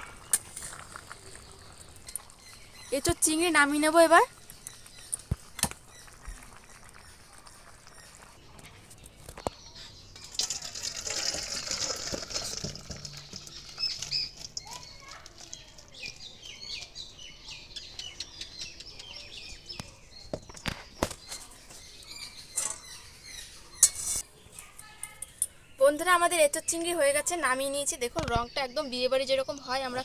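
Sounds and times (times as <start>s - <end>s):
food scraping and sliding: 0.0s - 2.4s, 23.7s - 24.2s
spatula squeaking on metal: 23.8s - 24.2s.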